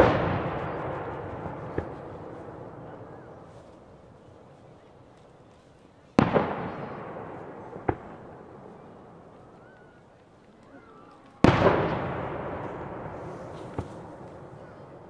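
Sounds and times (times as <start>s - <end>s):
echoing rumble: 0.0s - 3.5s
fireworks bursting: 0.0s - 9.6s, 11.2s - 15.0s.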